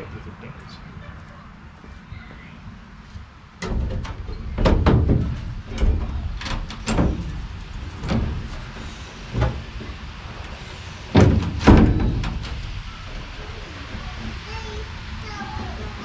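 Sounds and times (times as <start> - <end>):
knocks on sheet-metal van door: 3.6 - 8.8, 11.1 - 12.8.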